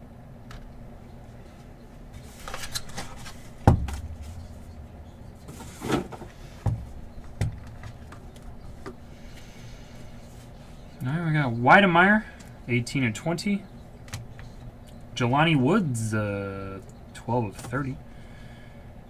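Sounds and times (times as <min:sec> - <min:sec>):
sharp knock with dull thud: 0:03.6 - 0:04.4.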